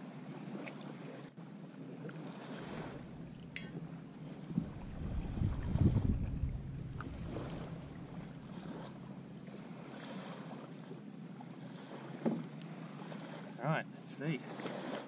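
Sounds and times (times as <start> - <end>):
wind noise on microphone: 4.4 - 8.9.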